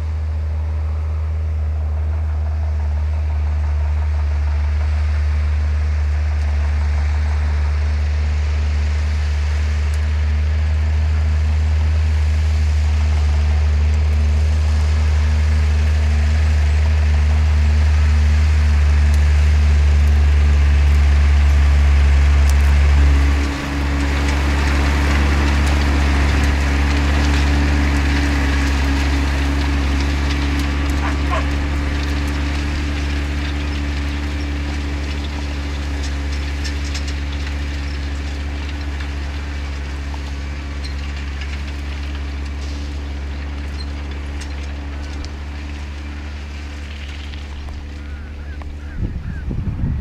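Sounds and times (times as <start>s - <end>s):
tractor engine droning: 0.0s - 50.0s.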